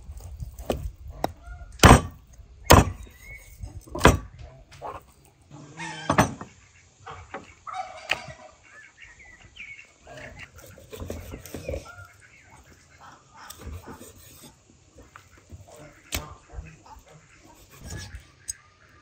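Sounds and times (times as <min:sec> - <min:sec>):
knife chopping on wooden board: 0:00.6 - 0:03.0, 0:04.0 - 0:04.3
poultry calling: 0:01.1 - 0:01.8, 0:04.4 - 0:19.0.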